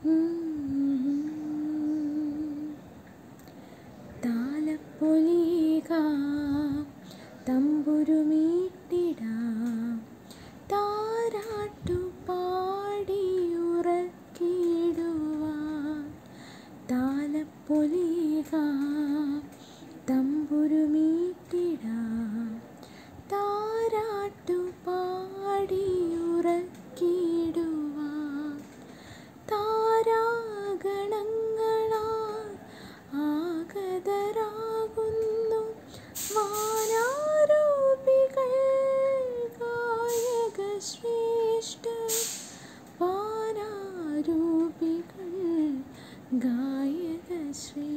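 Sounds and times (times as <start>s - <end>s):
girl singing: 0.0s - 3.0s, 4.1s - 16.2s, 16.9s - 47.9s.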